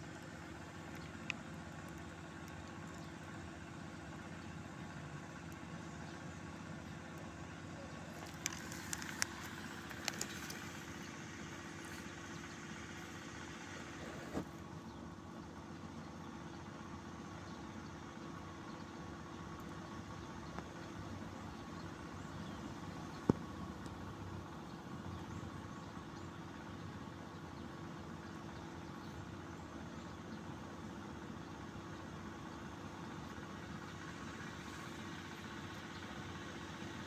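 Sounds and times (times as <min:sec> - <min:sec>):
low mechanical hum: 0:00.0 - 0:37.0.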